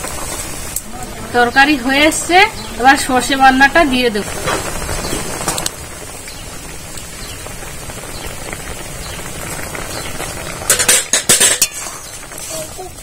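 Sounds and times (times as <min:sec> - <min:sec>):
curry bubbling in a metal pan: 0:00.0 - 0:13.0
metal spoon clattering against pan: 0:10.7 - 0:12.0.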